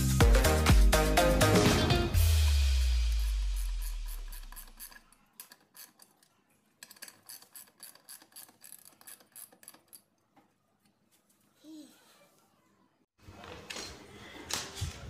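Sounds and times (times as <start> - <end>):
background music: 0.0 - 4.2
screwdriver clicks: 3.6 - 6.2.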